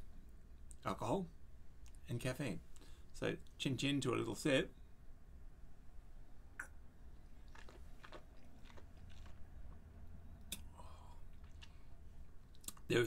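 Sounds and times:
small mouth clicks: 0:06.6 - 0:06.8, 0:10.4 - 0:10.8, 0:12.5 - 0:12.9.

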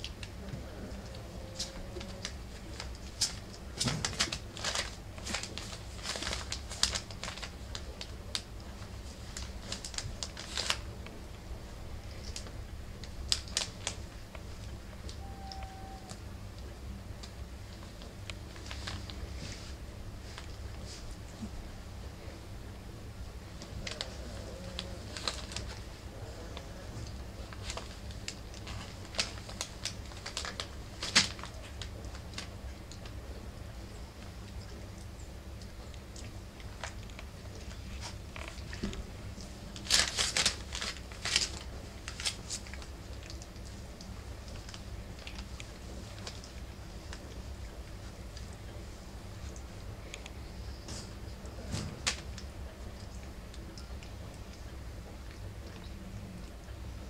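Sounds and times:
newspaper crinkling under paws: 0:00.0 - 0:11.1, 0:12.1 - 0:16.1, 0:17.7 - 0:21.2, 0:23.4 - 0:33.2, 0:36.2 - 0:49.6.

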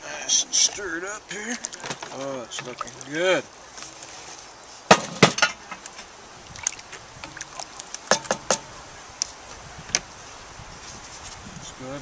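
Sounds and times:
wooden spoon knocking on cast iron pot: 0:07.2 - 0:08.7.

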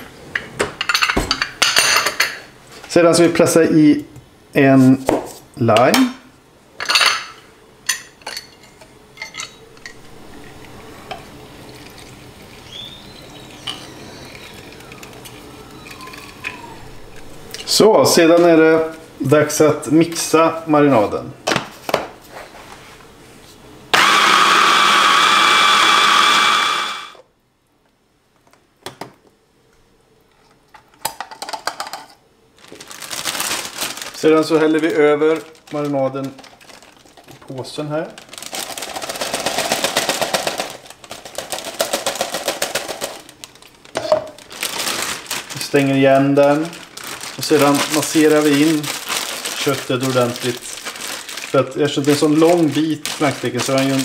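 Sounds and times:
stick blender running: 0:23.9 - 0:27.2.

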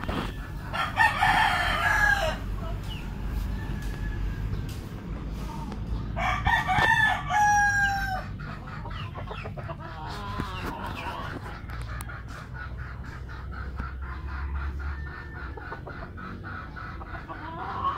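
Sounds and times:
chicken clucking: 0:00.0 - 0:17.9
rooster crowing: 0:00.7 - 0:04.6, 0:06.2 - 0:08.3.

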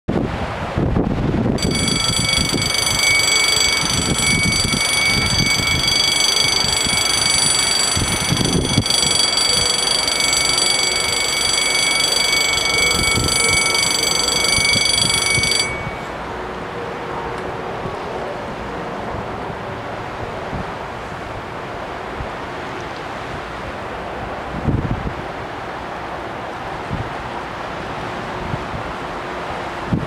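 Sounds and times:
wind buffeting microphone: 0:00.1 - 0:22.5, 0:23.2 - 0:25.6, 0:26.7 - 0:30.0
level crossing warning bells: 0:01.6 - 0:16.3.

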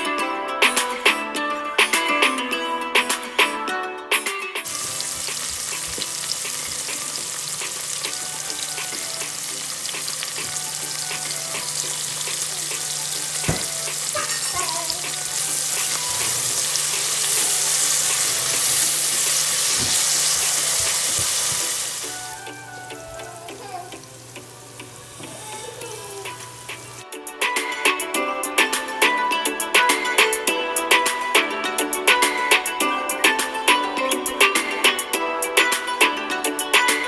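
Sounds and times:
background music: 0:00.0 - 0:37.0
onions sizzling in oil: 0:04.7 - 0:27.0.

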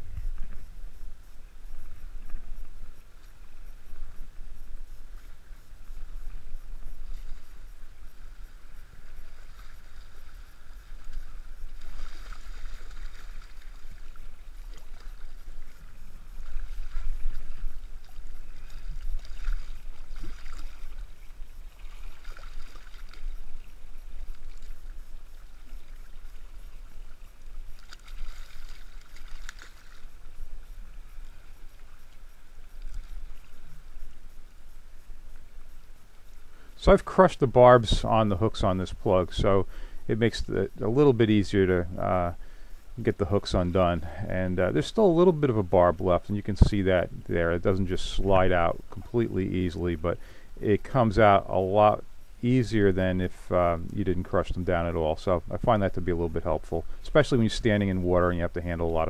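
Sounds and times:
wind rumble on microphone: 0:00.0 - 0:27.7, 0:43.0 - 0:49.8
water sloshing and splashing: 0:01.7 - 0:34.6.

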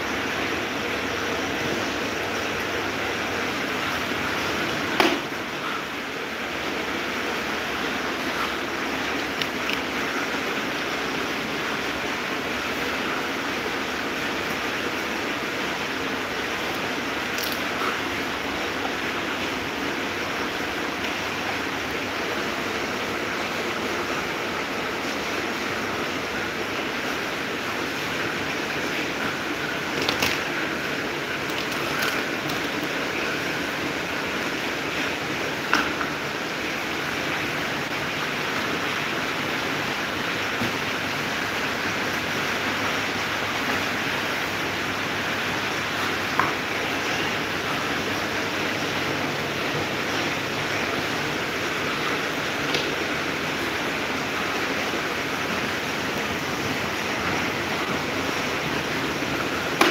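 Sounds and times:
electric fans running: 0:00.0 - 0:59.9.

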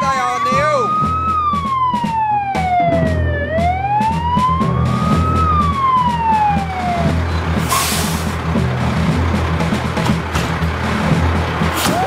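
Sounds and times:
fire engine siren wailing: 0:00.0 - 0:12.0
engine rumble: 0:02.6 - 0:12.0.

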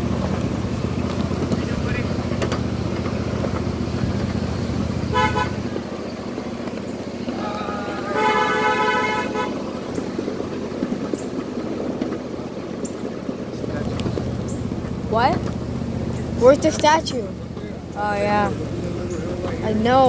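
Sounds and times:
train running rumble: 0:00.0 - 0:20.0
toy train horn tooting: 0:05.1 - 0:05.7, 0:07.3 - 0:09.9.

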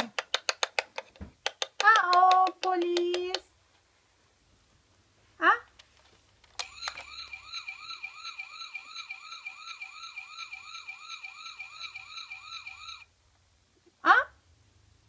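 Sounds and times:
toy siren warbling: 0:06.6 - 0:13.1.

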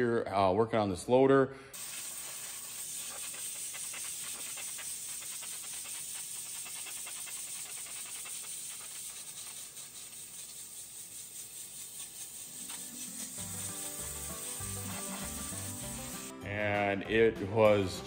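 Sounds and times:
spray jet hissing: 0:01.8 - 0:16.3.

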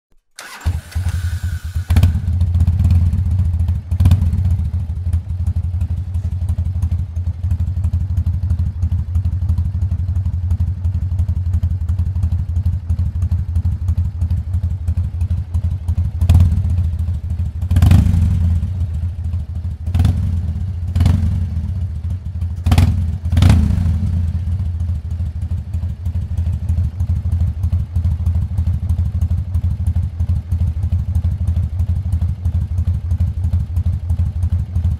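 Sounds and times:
electric starter whine: 0:00.3 - 0:02.2
motorcycle engine idling: 0:00.4 - 0:34.9.

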